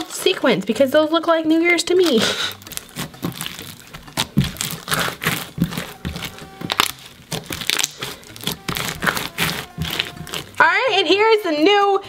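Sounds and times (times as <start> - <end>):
slime crackling as kneaded: 1.9 - 11.2.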